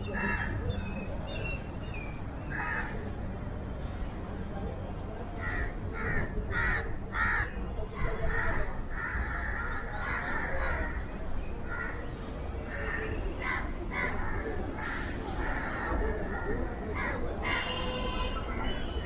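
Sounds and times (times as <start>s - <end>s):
crows cawing: 2.5s - 3.0s, 5.4s - 7.6s, 8.3s - 11.0s, 12.7s - 16.0s.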